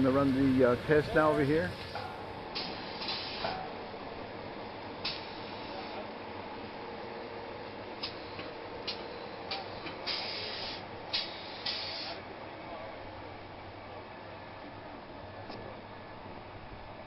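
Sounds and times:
equipment hum: 0:00.0 - 0:17.0
short bursts of hiss: 0:02.6 - 0:03.5, 0:05.0 - 0:06.0, 0:08.0 - 0:12.2.

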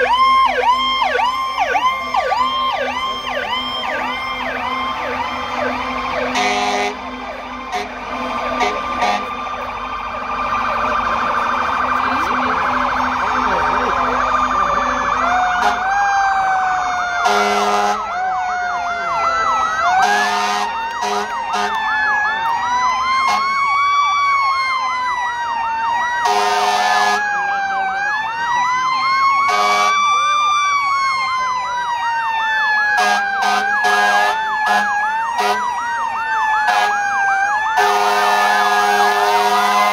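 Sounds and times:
emergency sirens wailing: 0:00.0 - 0:39.9
loud horn blasts: 0:06.2 - 0:09.4, 0:17.2 - 0:18.0, 0:20.0 - 0:21.8, 0:23.3 - 0:23.6, 0:26.2 - 0:27.2, 0:29.5 - 0:30.0, 0:33.0 - 0:35.7, 0:36.7 - 0:37.0, 0:37.8 - 0:39.9.

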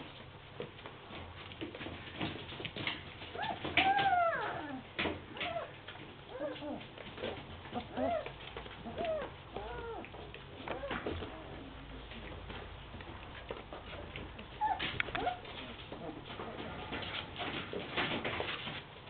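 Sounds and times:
puppies whining and yipping: 0:03.3 - 0:12.4, 0:14.5 - 0:17.2.

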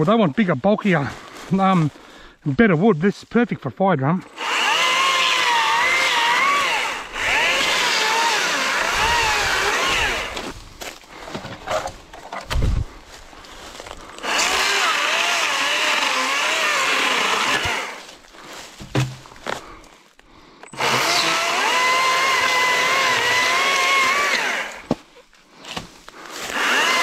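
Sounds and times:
electric chainsaw cutting branch: 0:04.3 - 0:10.6, 0:14.2 - 0:18.1, 0:20.7 - 0:25.0, 0:26.4 - 0:27.0
knocks and thump: 0:18.8 - 0:19.3.

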